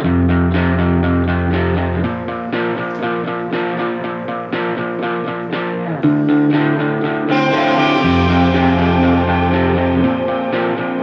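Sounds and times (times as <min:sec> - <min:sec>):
instrumental music through speakers: 0:00.0 - 0:11.0.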